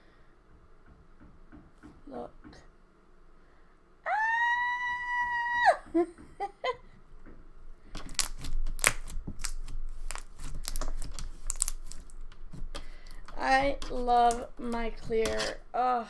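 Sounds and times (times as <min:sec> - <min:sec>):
high-pitched squeal of delight: 0:04.0 - 0:06.0
slime squishing and crackling: 0:07.9 - 0:15.6.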